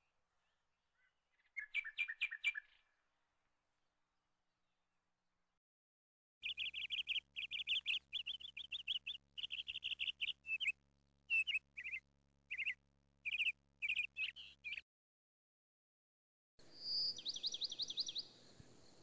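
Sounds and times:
small bird chirping: 0.0s - 2.9s, 6.4s - 14.8s, 16.7s - 19.0s.

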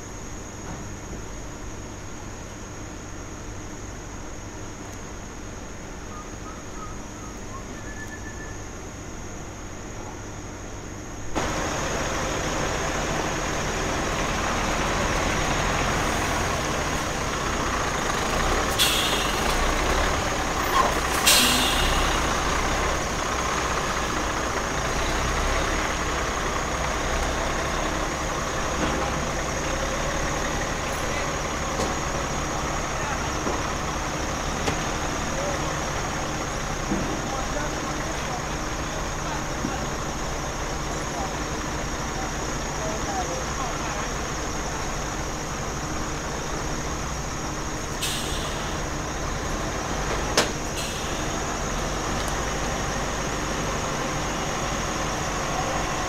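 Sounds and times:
heavy lorry engine running: 0.0s - 56.0s
air brake hisses: 18.7s - 19.9s, 20.6s - 22.5s, 47.9s - 49.0s, 50.5s - 51.5s.

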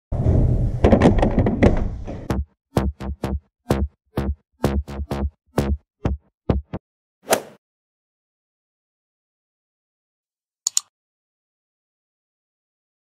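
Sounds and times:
electronic music with heavy bass: 2.3s - 6.8s.

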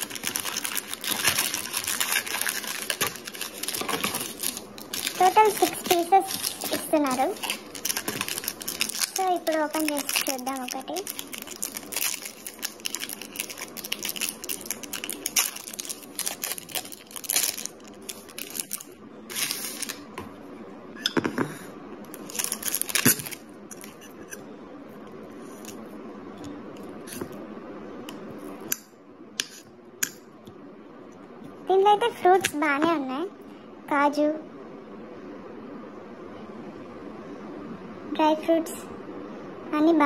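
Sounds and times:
foil wrapper crinkling and tearing: 0.0s - 20.0s, 22.1s - 24.0s.

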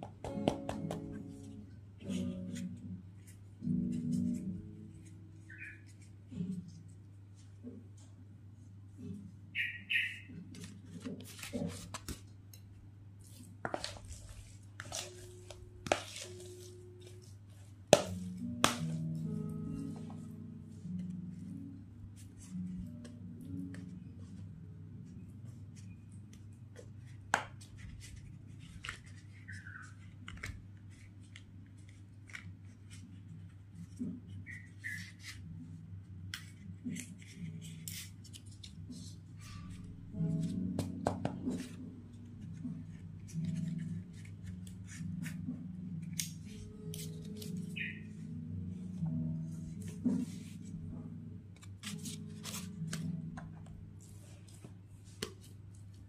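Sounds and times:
spoon scraping plastic bowl: 13.6s - 16.7s.

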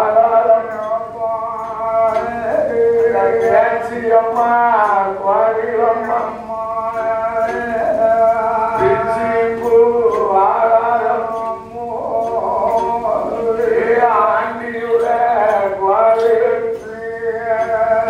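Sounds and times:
man singing a chanted song: 0.0s - 18.0s
percussion beat: 0.0s - 18.0s.

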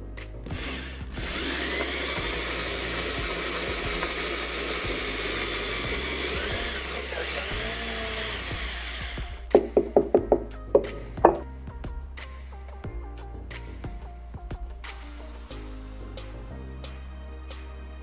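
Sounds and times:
electric drill boring into wood: 0.4s - 11.4s.

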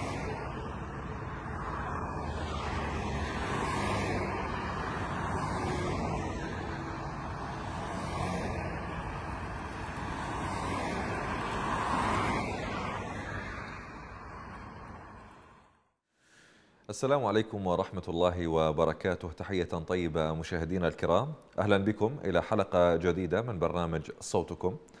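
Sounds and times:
vehicles driving past: 0.0s - 15.9s.

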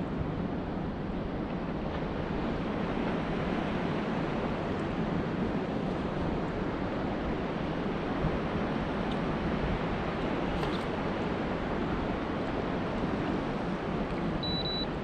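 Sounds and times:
open water around a kayak: 0.0s - 15.0s.

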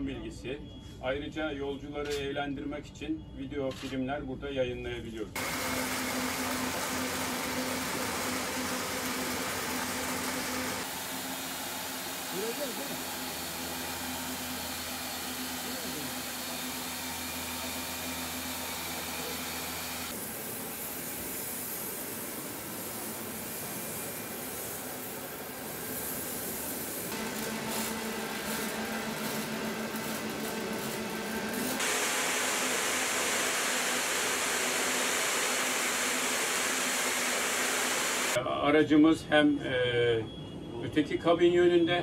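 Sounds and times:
machine hum: 5.4s - 21.2s, 27.1s - 38.4s
welding hiss: 5.4s - 38.4s.

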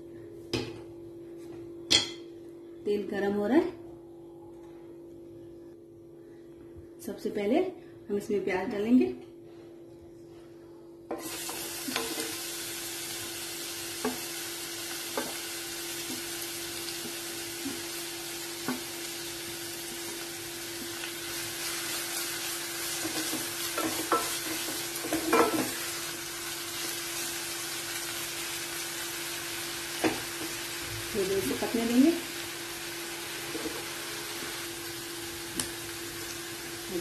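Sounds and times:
onion sizzling in hot oil: 11.1s - 37.0s.

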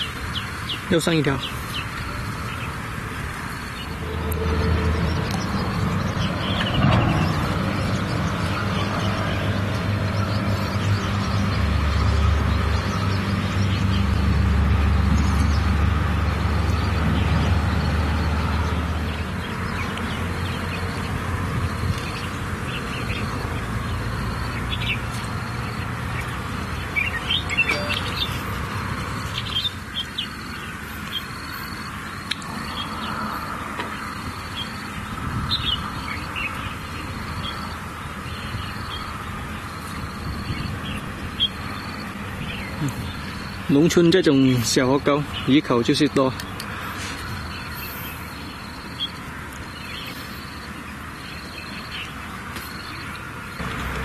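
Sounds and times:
birds chirping: 0.0s - 54.0s
short high bird note: 27.7s - 28.1s.

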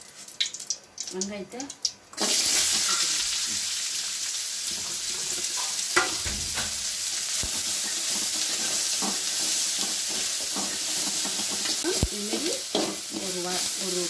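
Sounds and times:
onions sizzling in hot oil: 0.0s - 14.0s
utensil knocking on pan: 6.0s - 6.9s.

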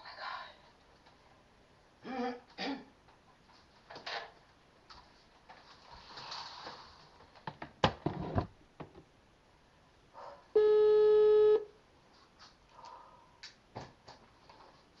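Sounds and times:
ringback tone: 10.6s - 11.7s.

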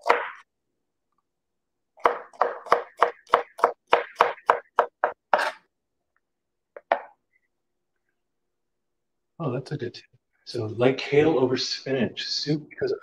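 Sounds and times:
knife chopping on plastic board: 0.0s - 0.4s, 2.0s - 5.6s.

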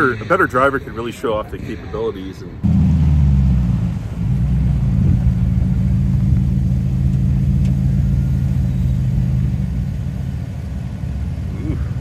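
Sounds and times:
vehicle engine droning: 2.6s - 12.0s.

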